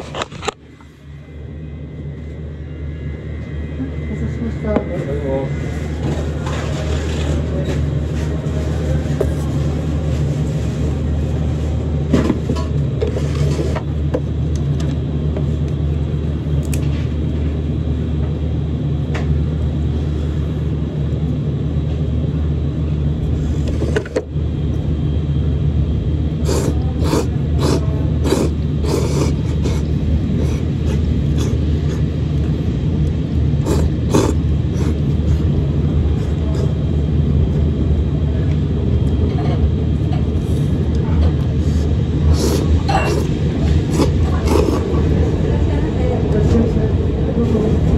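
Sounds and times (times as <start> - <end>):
low rumbling hum: 0.0 - 47.9
slurping noodles with chopsticks: 26.4 - 32.1, 33.6 - 35.5, 41.6 - 44.9.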